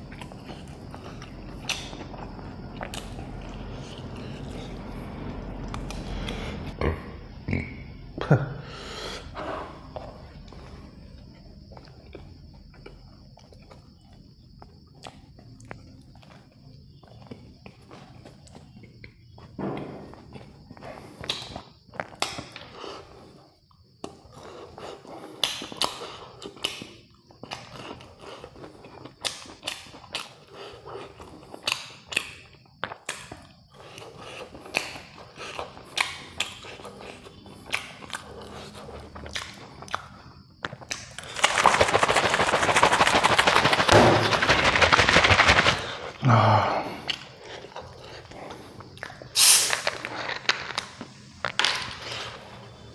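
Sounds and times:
crispy fried chicken crunching: 40.6 - 46.1.

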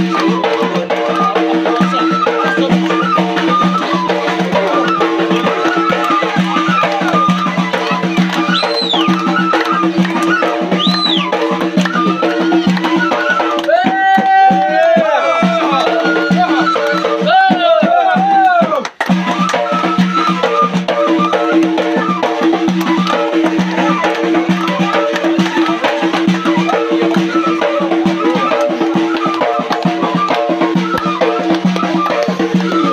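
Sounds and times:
warbling trill: 0.0 - 13.6
frame drum beat: 0.0 - 32.9
reed flute melody: 0.0 - 32.9.

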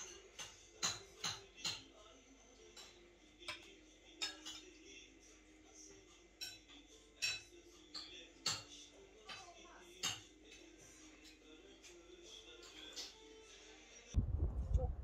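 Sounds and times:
metal spoon clinking on bowl: 2.6 - 4.9, 6.4 - 12.0.

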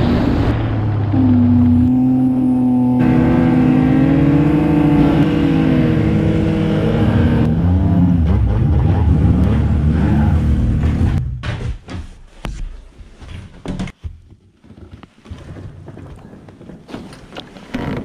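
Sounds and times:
snowmobile engine running: 0.0 - 11.1.

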